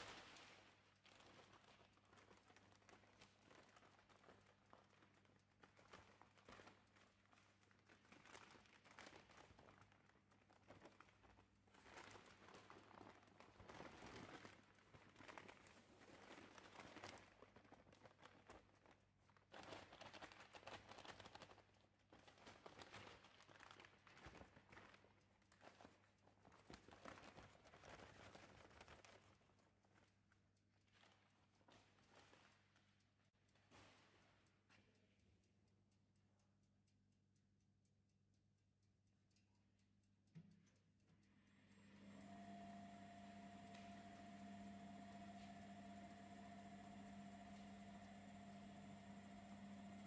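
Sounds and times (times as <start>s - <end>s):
faint low hum: 40.3s - 50.0s.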